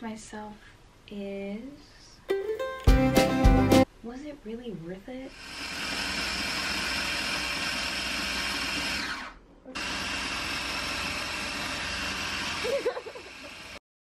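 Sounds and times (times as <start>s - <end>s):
food processor running: 5.3s - 13.8s.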